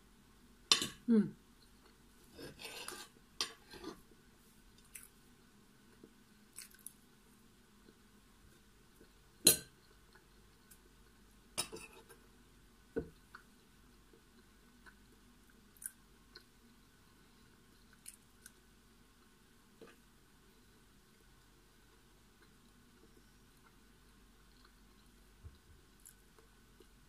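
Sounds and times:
cutlery scraping a glass plate: 2.4 - 4.0.

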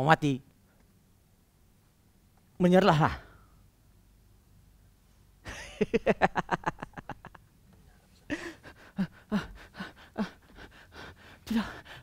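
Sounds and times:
man's breathy gasps: 8.3 - 12.0.

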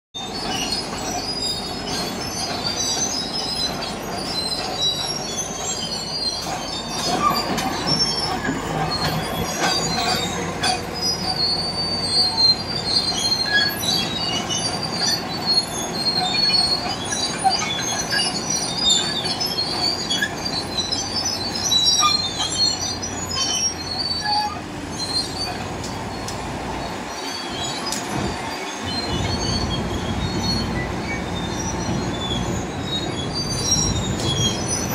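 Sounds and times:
steel tracks squealing and knocking: 0.2 - 34.9.

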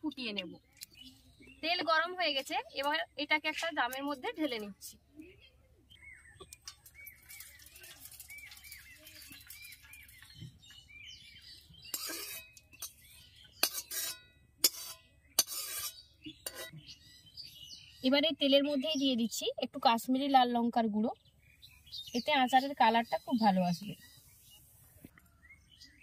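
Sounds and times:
small birds chirping: 0.0 - 26.0
metal spoon scraping a wok: 6.6 - 10.1, 11.8 - 16.8.

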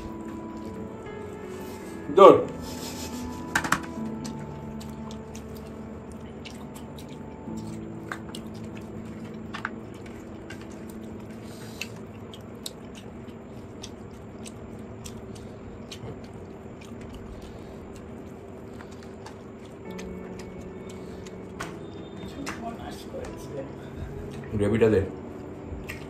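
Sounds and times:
chewing and wet squishing: 0.0 - 1.9, 3.9 - 26.0
faint steady hum: 0.0 - 26.0
mouth clicks and smacks: 25.8 - 26.0.

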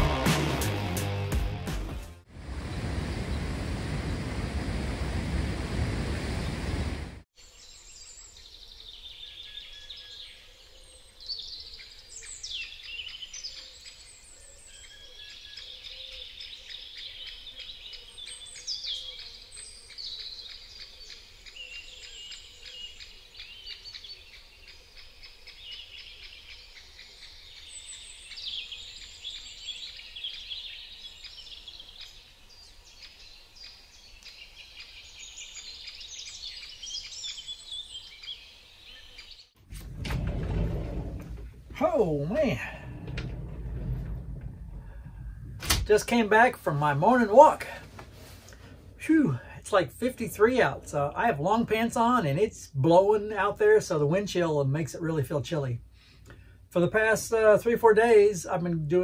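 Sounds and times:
faint outdoor background: 0.0 - 59.0
small birds chirping: 7.4 - 39.6.

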